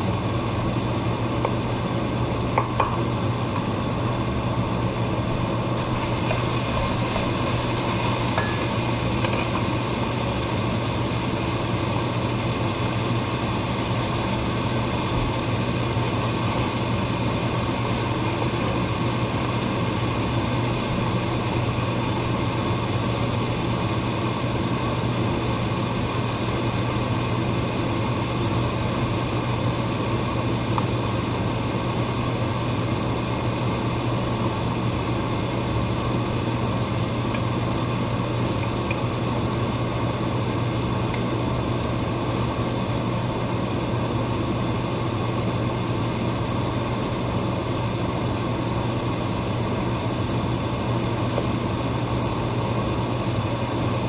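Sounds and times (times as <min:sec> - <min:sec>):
machine hum with low drone: 0:00.0 - 0:54.0.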